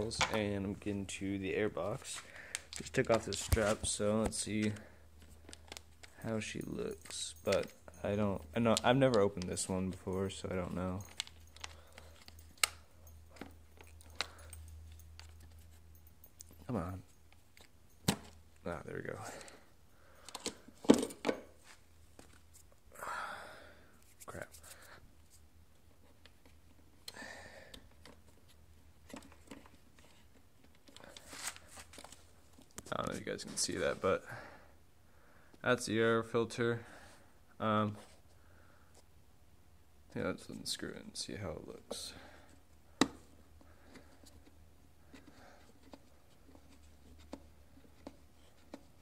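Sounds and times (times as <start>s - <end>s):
handling rustle: 0.0s - 19.6s, 28.0s - 34.2s
low room hum: 0.0s - 49.0s.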